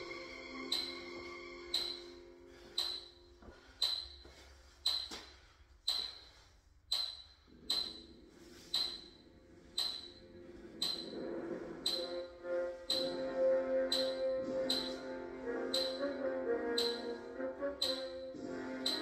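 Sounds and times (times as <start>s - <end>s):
quiet background music: 0.0s - 4.6s, 7.5s - 19.0s
sharp high ticks with ping: 0.6s - 4.2s, 4.8s - 5.3s, 5.9s - 6.3s, 6.9s - 9.2s, 9.8s - 11.2s, 11.8s - 12.3s, 12.9s - 13.3s, 13.9s - 15.1s, 15.7s - 19.0s.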